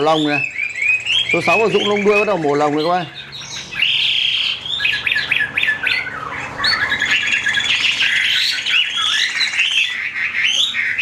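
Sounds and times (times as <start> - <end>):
songbirds whistling: 0.0 - 11.0.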